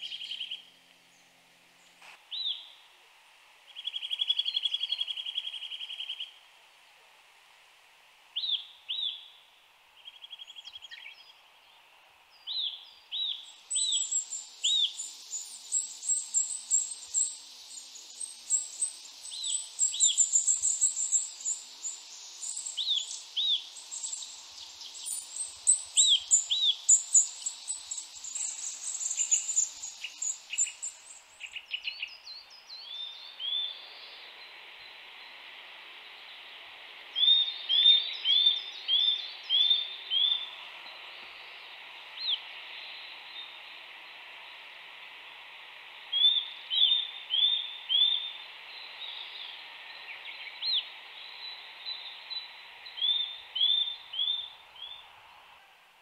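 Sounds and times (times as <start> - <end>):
high dense twittering: 13.3 - 44.9.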